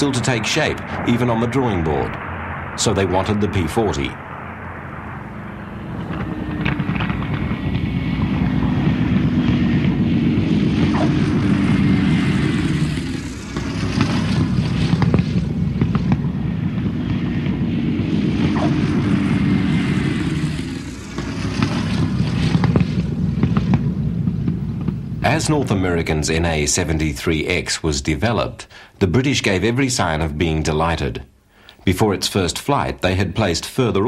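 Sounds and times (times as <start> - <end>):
propeller plane piston engine: 0.0 - 25.8.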